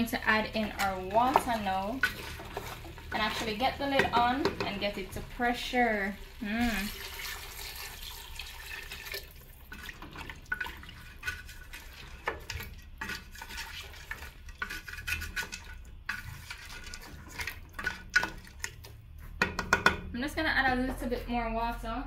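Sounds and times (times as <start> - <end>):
wooden spoon scraping metal pot: 0.0 - 7.4, 9.8 - 19.9
water pouring into a pot: 5.3 - 14.7.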